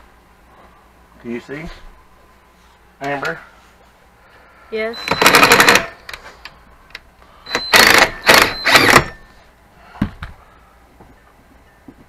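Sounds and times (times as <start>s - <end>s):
cordless drill spinning: 7.5s - 9.2s.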